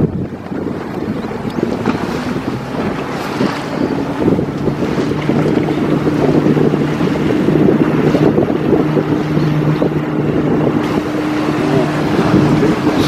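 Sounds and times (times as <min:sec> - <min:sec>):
boat engine humming: 0:00.0 - 0:13.0
wind buffeting microphone: 0:00.0 - 0:13.0.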